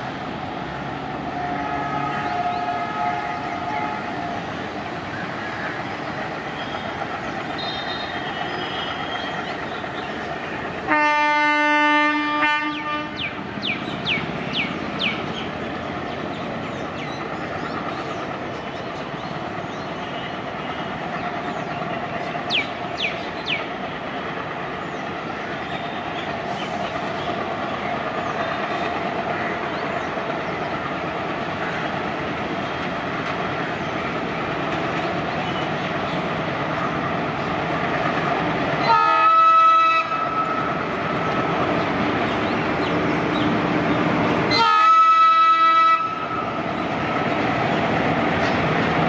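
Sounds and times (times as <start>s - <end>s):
train running noise: 0.0s - 49.0s
locomotive horn: 1.2s - 4.4s, 10.9s - 13.3s, 38.8s - 40.7s, 44.5s - 46.5s.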